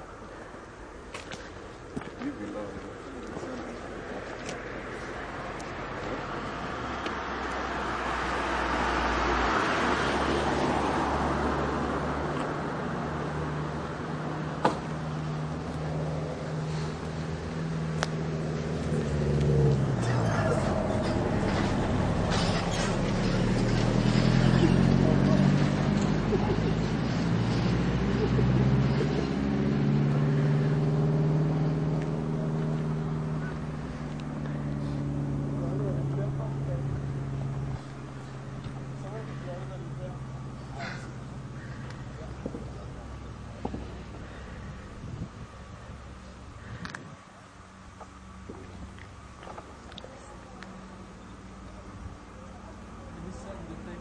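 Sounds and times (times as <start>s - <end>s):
car engine idling: 30.0s - 54.0s.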